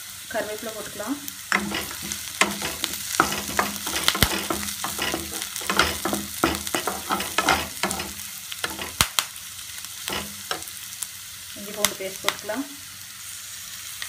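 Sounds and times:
frying sizzle: 0:00.0 - 0:14.0
spatula scraping a pan: 0:01.5 - 0:09.0, 0:10.0 - 0:10.8.

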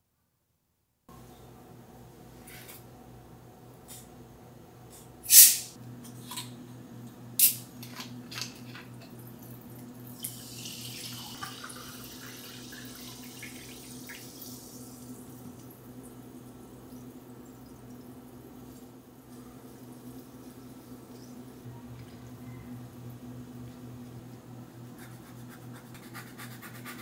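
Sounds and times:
bottle cap gas hiss: 0:05.3 - 0:05.8
water poured into glass fizzing: 0:10.2 - 0:14.6.

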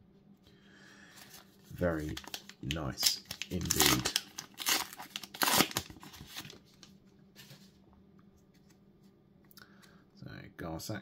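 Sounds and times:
paper cards rustling: 0:01.2 - 0:07.7.

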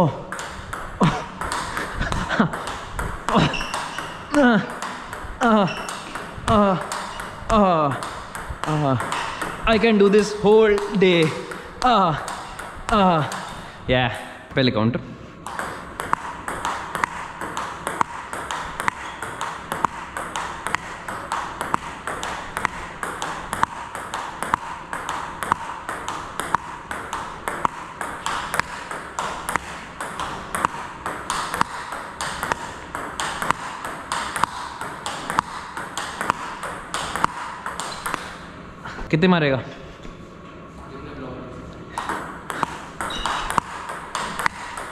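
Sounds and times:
table tennis ball clicks: 0:15.5 - 0:38.4, 0:42.0 - 0:44.9.

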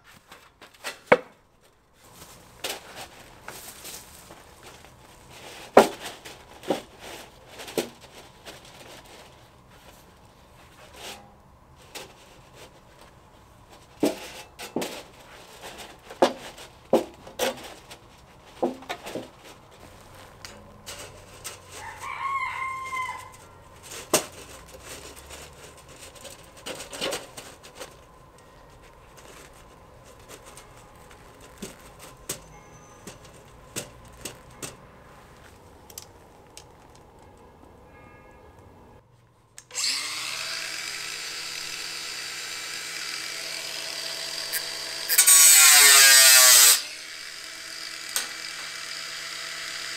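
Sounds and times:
scrap metal boards clattering on gravel: 0:00.1 - 0:35.5
rooster crowing: 0:21.7 - 0:23.6.

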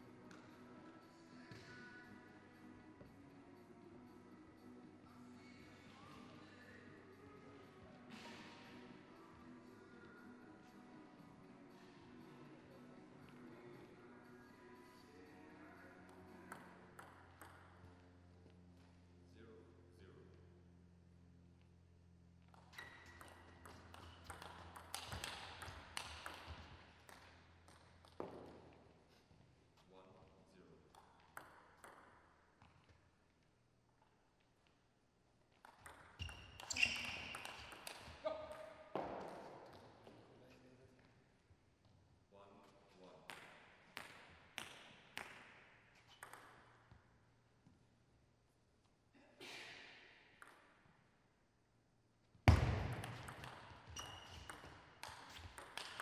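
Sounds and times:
table tennis ball hits: 0:16.5 - 0:18.0, 0:22.5 - 0:28.7, 0:30.9 - 0:32.8, 0:35.6 - 0:39.9, 0:43.3 - 0:46.8, 0:52.5 - 0:56.0.

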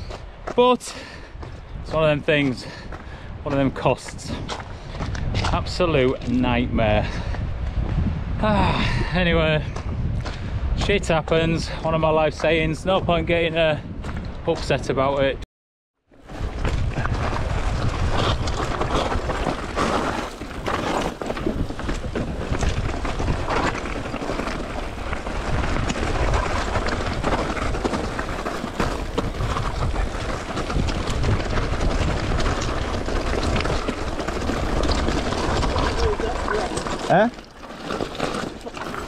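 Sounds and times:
bike tyres rolling over stones: 0:00.0 - 0:14.8, 0:16.2 - 0:39.0
wind buffeting microphone: 0:00.0 - 0:15.4, 0:16.2 - 0:39.0
bike clattering and rattling: 0:16.2 - 0:39.0.

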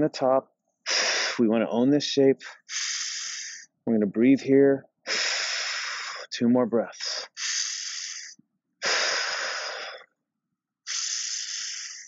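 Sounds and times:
man breathing deliberately: 0:00.8 - 0:01.4, 0:02.4 - 0:03.7, 0:05.0 - 0:06.3, 0:07.0 - 0:10.1, 0:10.8 - 0:12.0.

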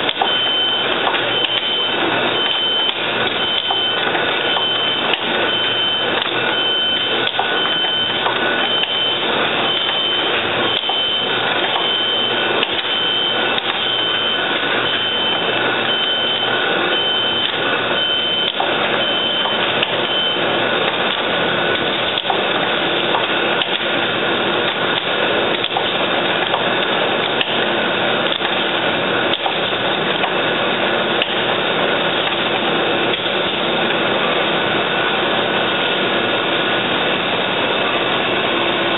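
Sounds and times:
high beep: 0:00.1 - 0:20.5.

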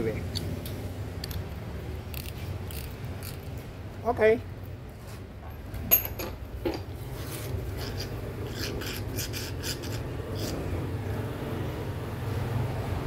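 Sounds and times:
scraping rubs on cardboard: 0:07.1 - 0:10.6.

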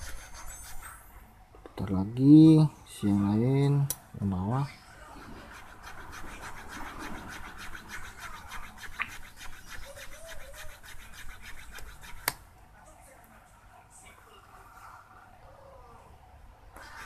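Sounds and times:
blade scraping carbon brush: 0:05.2 - 0:12.4.

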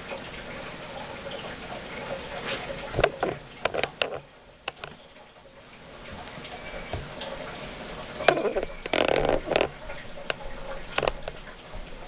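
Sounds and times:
sharp clicks and knocks: 0:03.0 - 0:05.0, 0:08.2 - 0:12.0.

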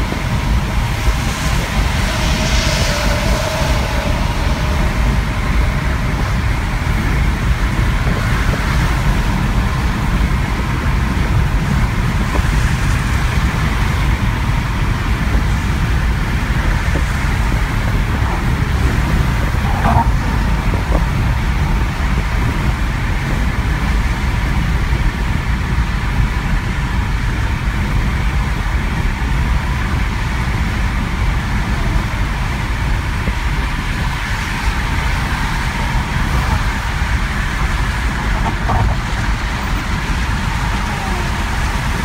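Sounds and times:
road and tyre noise in car: 0:00.0 - 0:42.0.

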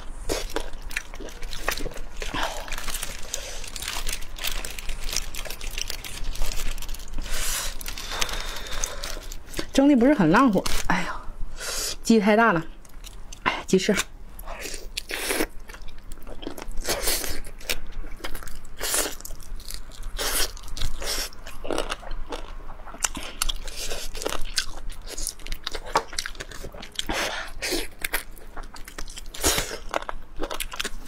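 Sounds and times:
person biting and chewing: 0:00.1 - 0:09.7.

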